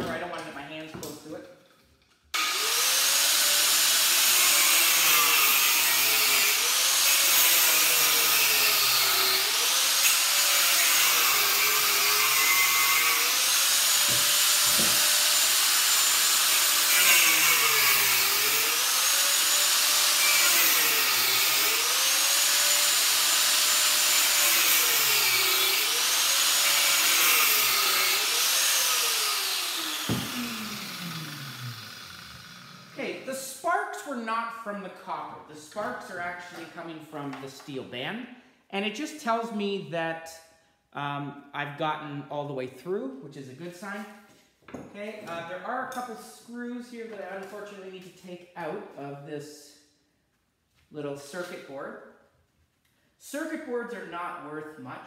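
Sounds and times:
angle grinder cutting metal: 2.4 - 33.0
grinder spinning down: 2.4 - 33.0.

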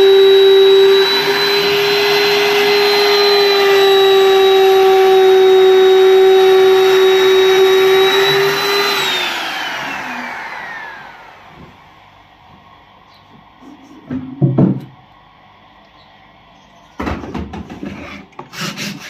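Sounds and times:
router motor whining: 0.0 - 12.7.

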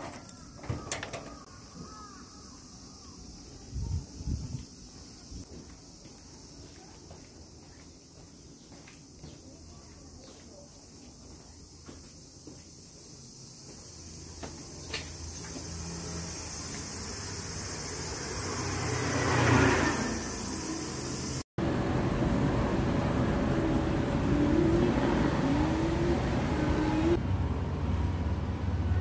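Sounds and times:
road traffic noise: 0.0 - 29.0
car passing: 15.2 - 29.0.

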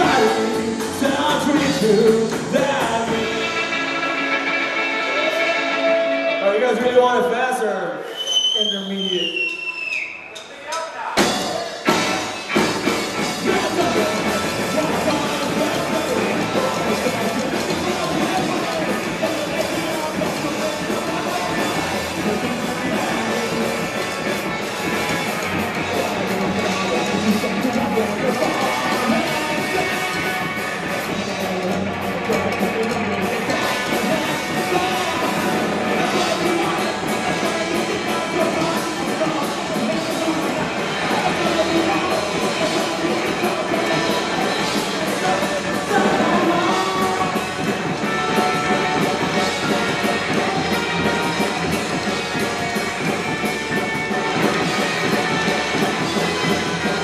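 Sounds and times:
electric guitar: 0.0 - 7.0, 11.2 - 57.0
upright bass: 0.0 - 7.8, 11.2 - 57.0
live rock band playing: 0.0 - 9.4, 11.2 - 57.0
drums: 0.0 - 57.0.

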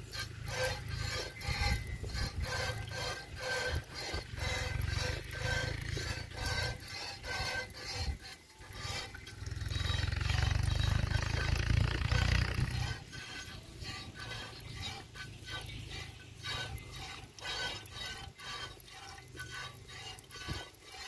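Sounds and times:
hissing squirts of milk: 0.0 - 21.0
wind rumble on microphone: 1.4 - 6.8, 10.2 - 13.3.

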